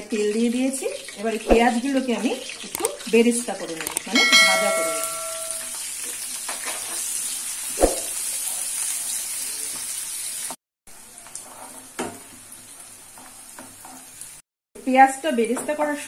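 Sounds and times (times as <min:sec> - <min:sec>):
onions sizzling in hot oil: 0:00.0 - 0:16.0
spatula knocking on pan: 0:04.2 - 0:05.7
spatula stirring in pan: 0:11.1 - 0:14.2.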